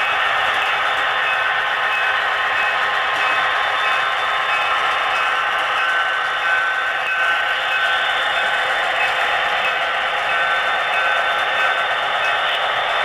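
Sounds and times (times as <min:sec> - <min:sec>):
model train running: 0:00.0 - 0:13.0.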